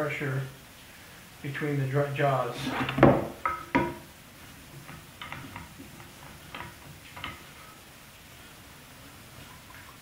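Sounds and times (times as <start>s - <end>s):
wooden knocks on bench: 2.9s - 4.0s.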